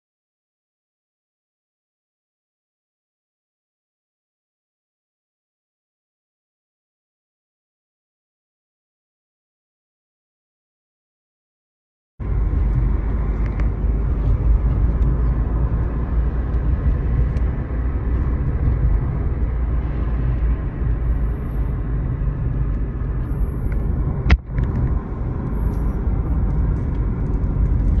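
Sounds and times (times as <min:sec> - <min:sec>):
car engine and tyres rumbling: 0:12.2 - 0:28.0.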